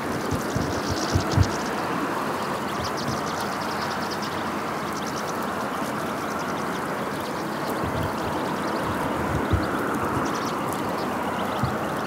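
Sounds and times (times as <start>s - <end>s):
steady rushing noise: 0.0s - 4.0s, 7.6s - 12.0s
goldfinches twittering: 0.0s - 12.0s.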